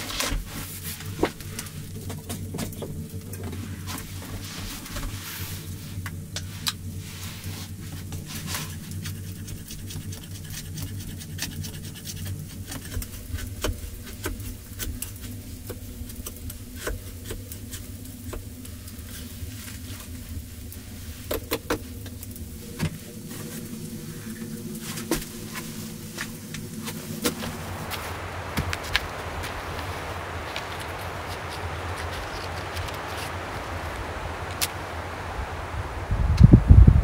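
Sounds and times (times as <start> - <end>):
steady low hum: 0.0 - 37.0
tool knocking and scraping wood: 8.2 - 18.5.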